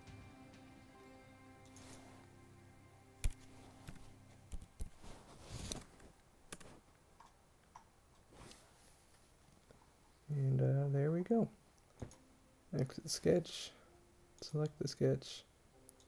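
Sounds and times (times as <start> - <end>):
faint background music: 0.0 - 6.8, 10.2 - 16.0.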